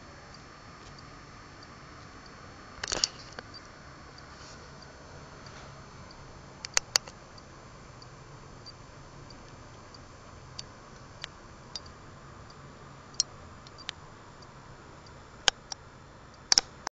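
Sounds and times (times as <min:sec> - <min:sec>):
steady low hum: 0:00.0 - 0:16.9
faint regular ticking: 0:00.3 - 0:16.9
sharp clicks: 0:06.6 - 0:08.1, 0:16.4 - 0:16.9.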